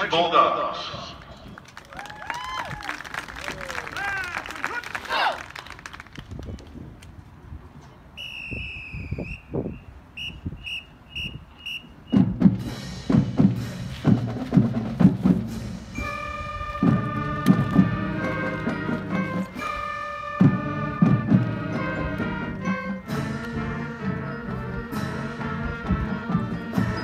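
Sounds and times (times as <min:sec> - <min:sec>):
whistle blasts: 0:08.2 - 0:12.4, 0:15.9 - 0:17.0
marching band drums: 0:11.6 - 0:27.0
brass and winds chords: 0:15.4 - 0:27.0.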